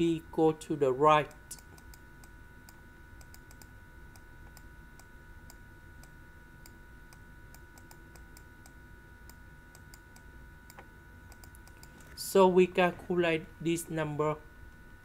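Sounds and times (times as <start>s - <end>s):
faint electronic whine: 0.0s - 15.0s.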